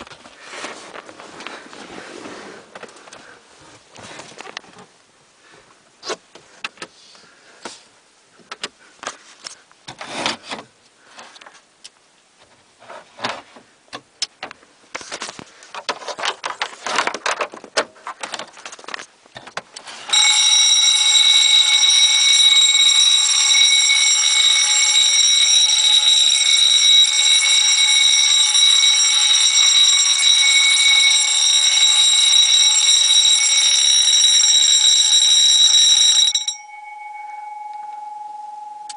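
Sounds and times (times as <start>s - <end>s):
electric fire alarm bells ringing: 20.1s - 38.9s.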